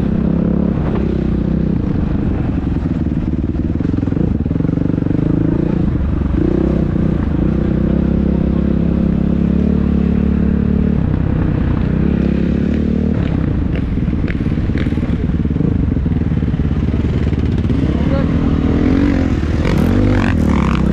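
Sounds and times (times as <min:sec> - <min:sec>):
dirt bike engine running: 0:00.0 - 0:20.9.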